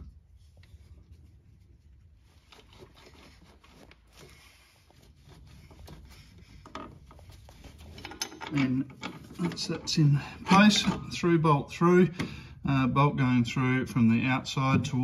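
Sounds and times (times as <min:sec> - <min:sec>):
metal parts scraping and clicking: 0:06.6 - 0:09.9.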